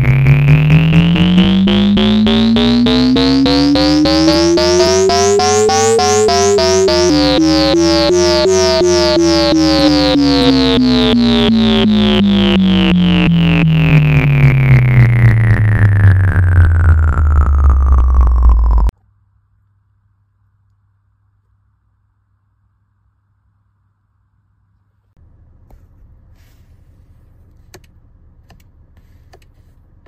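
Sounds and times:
electronic synthesizer music: 0.0 - 18.9.

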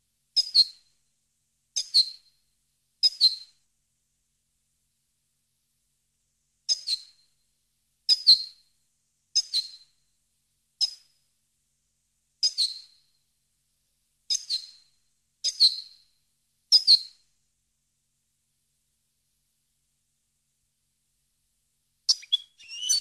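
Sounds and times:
goldfinch calls: 22.1 - 23.0.

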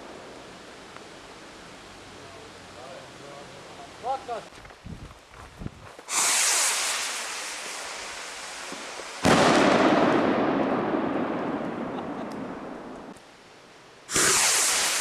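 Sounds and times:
firework rocket hissing: 6.0 - 13.2, 14.1 - 15.0
firework bang rumbling: 6.1 - 13.2, 14.1 - 15.0.

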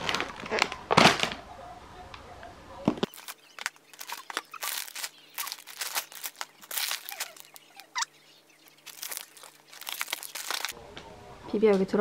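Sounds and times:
plastic snack bags rustling: 0.0 - 1.4, 3.1 - 8.0, 8.6 - 10.8.

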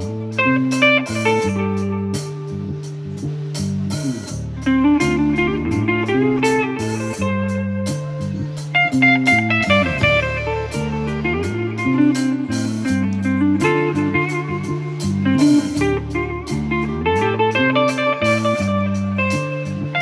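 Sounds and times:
bass guitar sliding down: 0.0 - 20.0
drum and cymbal strokes: 0.0 - 20.0
electric guitar: 0.0 - 20.0.

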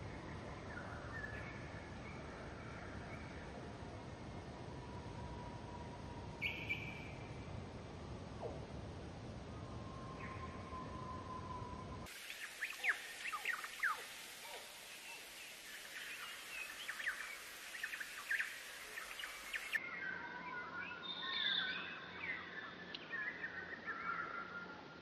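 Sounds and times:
warbling whistled birdsong: 0.0 - 8.6, 9.3 - 25.0
steady hiss: 0.0 - 19.8
songbirds chirping: 0.0 - 25.0.

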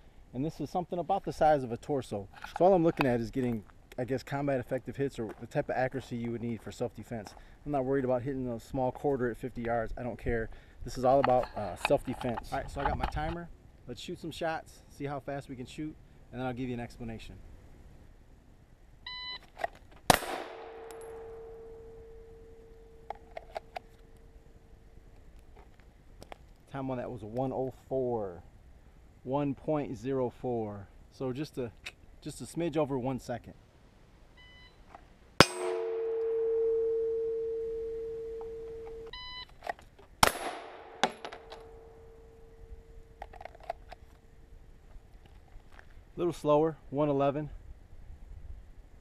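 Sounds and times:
pistol shot: 20.1 - 22.0, 35.4 - 37.0, 40.2 - 42.0
steel target ringing: 20.1 - 23.1, 35.4 - 39.1.

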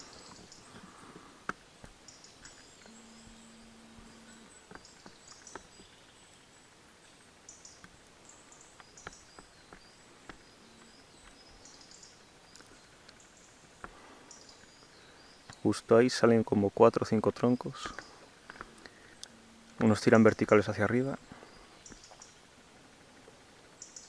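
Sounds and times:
low hum: 0.0 - 15.4, 18.0 - 24.0
high bird chirps: 2.1 - 6.4.

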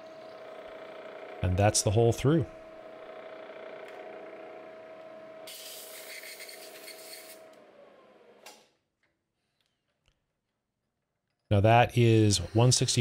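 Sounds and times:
drilling machine motor humming: 0.0 - 8.5, 12.0 - 13.0.

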